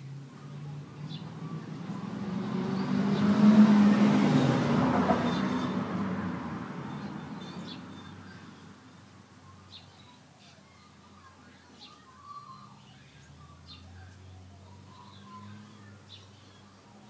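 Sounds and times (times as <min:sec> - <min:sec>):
motor vehicle driving past: 0:00.3 - 0:09.0.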